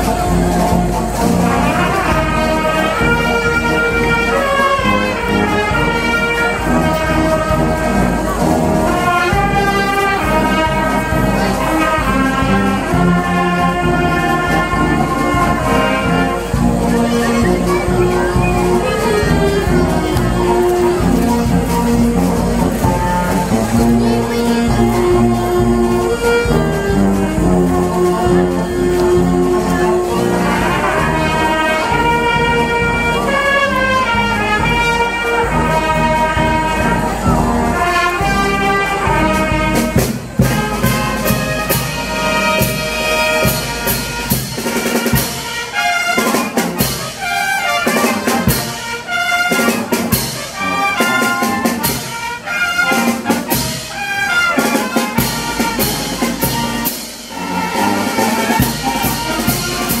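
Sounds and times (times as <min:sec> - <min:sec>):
brass chords: 0:00.0 - 1:00.0.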